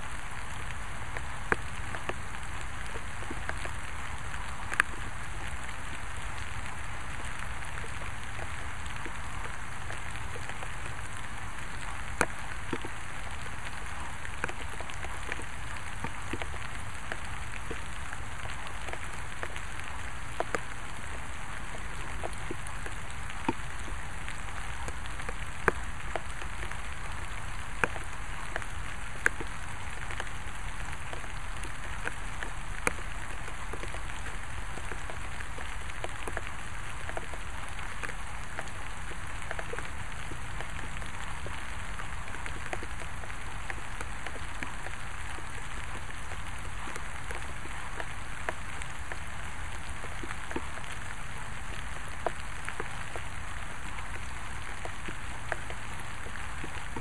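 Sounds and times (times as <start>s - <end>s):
rain falling: 0.0s - 57.0s
single raindrops striking close: 0.0s - 57.0s.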